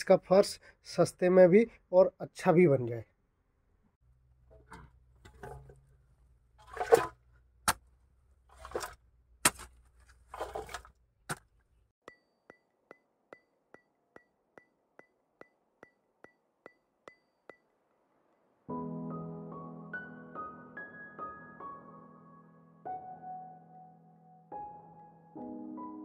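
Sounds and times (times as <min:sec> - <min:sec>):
spade cutting into dry soil: 0:06.6 - 0:11.6.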